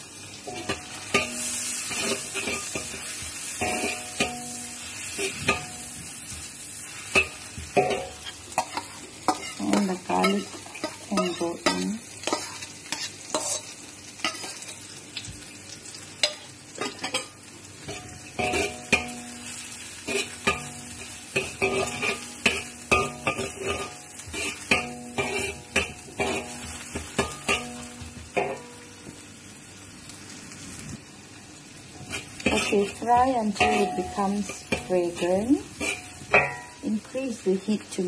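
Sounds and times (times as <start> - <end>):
food sizzling in oil: 0.0 - 38.0
metal spatula scraping a wok: 0.5 - 14.7, 16.2 - 28.7, 32.0 - 36.9.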